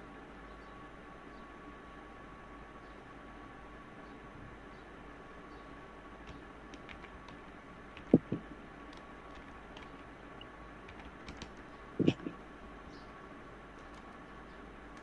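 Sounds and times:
keyboard key clicks: 0:08.0 - 0:10.0, 0:10.9 - 0:12.2.

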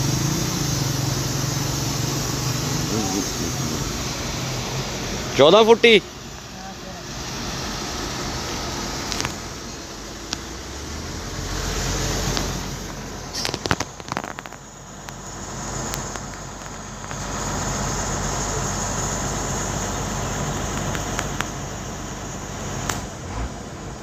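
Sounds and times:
truck engine idling: 0:00.0 - 0:24.0.

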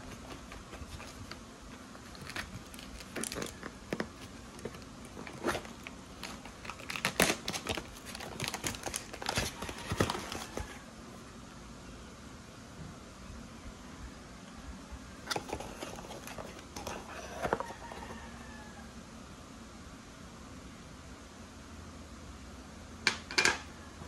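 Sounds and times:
plastic packaging crinkling: 0:00.0 - 0:10.8.

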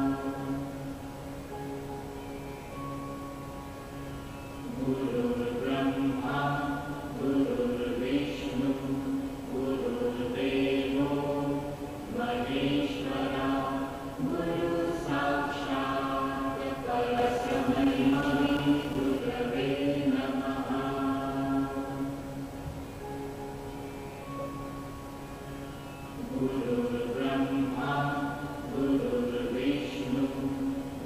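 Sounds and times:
voices chanting together: 0:00.0 - 0:01.0, 0:04.6 - 0:22.5, 0:26.1 - 0:31.0
low steady drone: 0:00.0 - 0:31.0.

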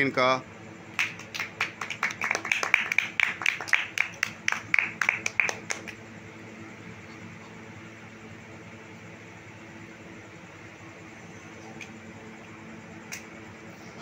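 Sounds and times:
hand clapping: 0:00.9 - 0:06.0, 0:13.1 - 0:13.3.

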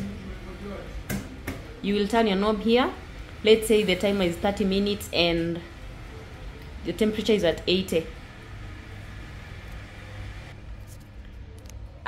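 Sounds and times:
oven motor humming: 0:05.7 - 0:10.6.

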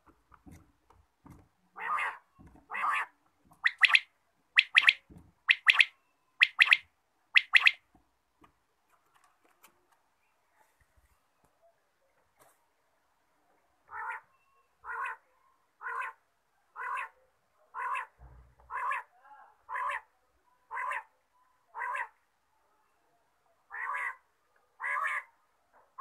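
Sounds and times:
quail calling: 0:01.8 - 0:07.8, 0:13.9 - 0:15.2, 0:16.8 - 0:19.1, 0:21.8 - 0:22.2, 0:23.7 - 0:24.2, 0:24.8 - 0:25.3.

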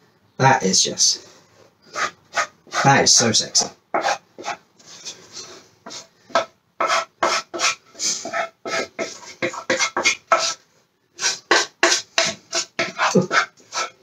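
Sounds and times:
utensil scraping batter from saucepan: 0:01.5 - 0:03.1, 0:04.0 - 0:10.6, 0:11.2 - 0:14.0.

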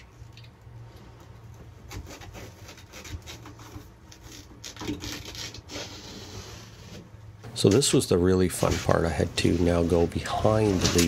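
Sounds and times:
hands rubbing and scuffing vinyl: 0:07.7 - 0:11.0.

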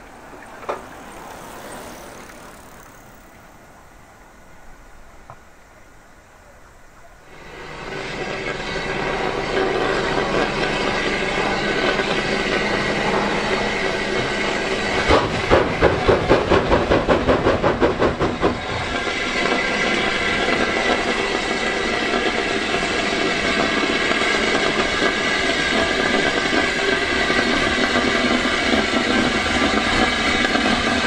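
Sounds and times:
steam hissing: 0:07.2 - 0:31.0
steam engine exhaust chuffs: 0:07.3 - 0:31.0.

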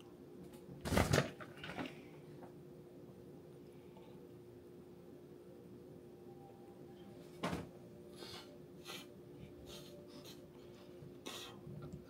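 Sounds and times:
faint steady hum: 0:00.0 - 0:12.0
person sniffing through nose: 0:08.1 - 0:10.4, 0:11.2 - 0:11.7.

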